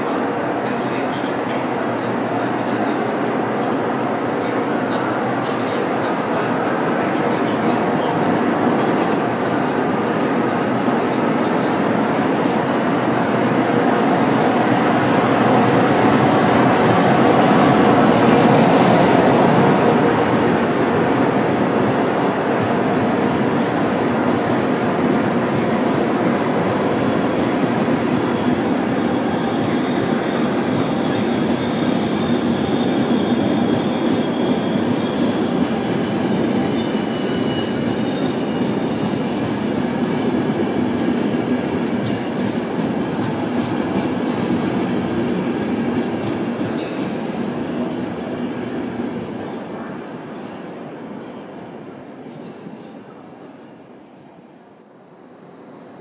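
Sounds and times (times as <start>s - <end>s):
train wheels rumbling on rail: 7.2s - 50.4s
faint wheel squeals: 29.2s - 39.5s.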